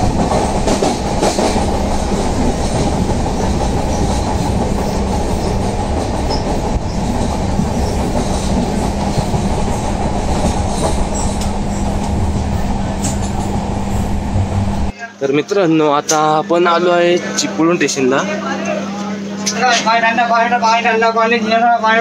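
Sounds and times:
train wheels rumbling on rails: 0:00.0 - 0:14.9
low hum: 0:06.8 - 0:14.9.

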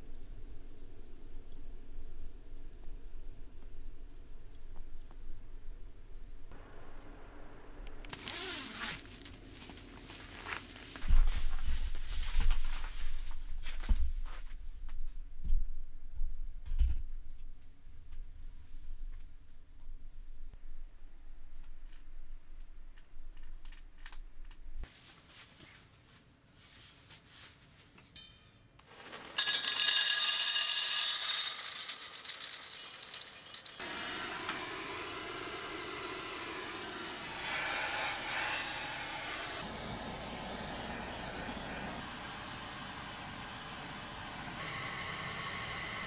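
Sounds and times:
pellets pouring into metal hopper: 0:28.9 - 0:33.8
butane torch hissing: 0:32.5 - 0:46.0.

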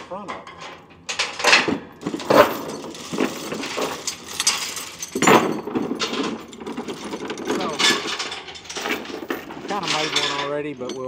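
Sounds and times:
chains rattling and clanking: 0:00.3 - 0:11.0
chain knocking on wooden boards: 0:00.5 - 0:11.0.

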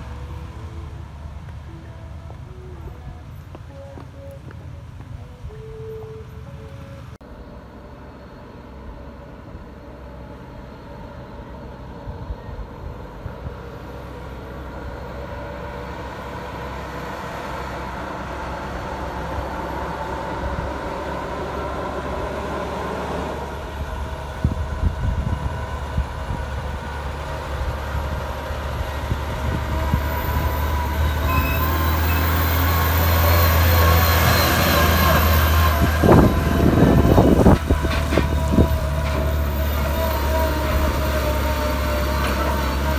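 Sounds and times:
truck engine drone: 0:00.0 - 0:42.9
truck knocks: 0:36.0 - 0:41.1.

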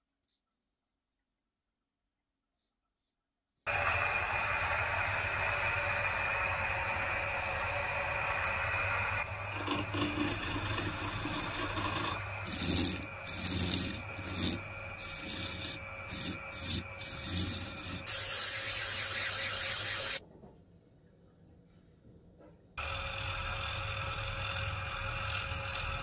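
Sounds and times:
electric motor hum: 0:03.7 - 0:20.2, 0:22.8 - 0:26.0
sandpaper sanding spinning rim: 0:09.2 - 0:20.2, 0:22.8 - 0:26.0
hand tool scraping wheel rim: 0:09.5 - 0:20.2, 0:22.9 - 0:26.0.

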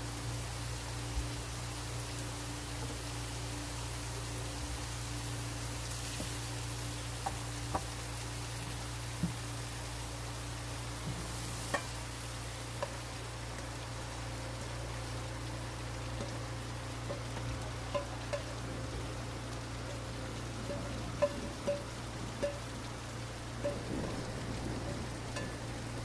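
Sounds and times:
steady hiss: 0:00.0 - 0:26.0
wok tapping on plate: 0:07.2 - 0:07.9, 0:11.7 - 0:11.9, 0:20.8 - 0:22.6.

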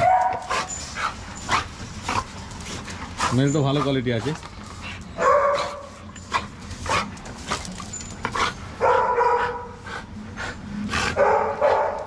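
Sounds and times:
dog yipping: 0:00.0 - 0:01.6, 0:05.2 - 0:05.9.

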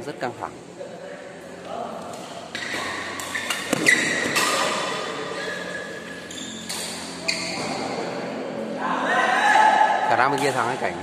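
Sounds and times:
racket hitting shuttlecock: 0:02.0 - 0:05.1
shoe squeaks on court floor: 0:02.5 - 0:08.0.

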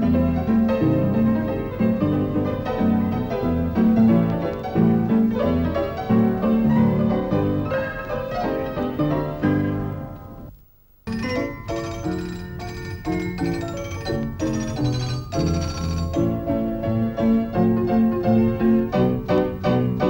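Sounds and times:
lively piano music: 0:00.0 - 0:10.5, 0:11.1 - 0:20.0.

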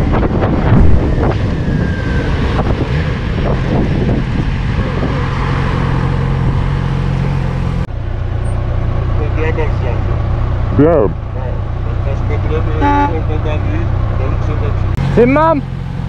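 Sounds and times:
wind noise on microphone: 0:00.0 - 0:05.4.

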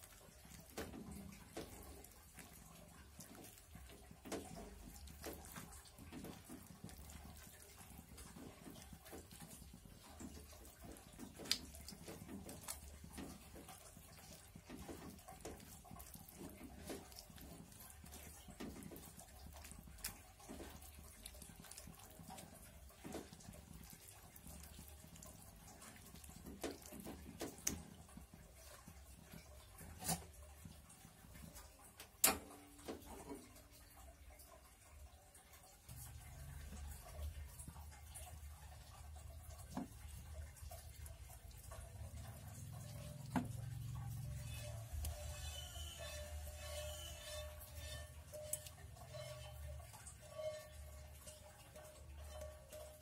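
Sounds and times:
food bubbling and sizzling in a wok: 0:00.0 - 0:53.0
low steady hum: 0:00.0 - 0:53.0
spatula scraping a pan: 0:44.1 - 0:53.0.

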